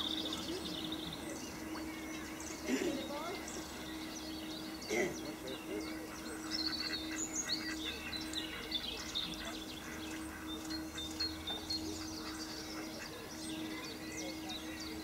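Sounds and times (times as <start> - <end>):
birds chirping: 0.0 - 15.0
steady low hum: 0.0 - 15.0.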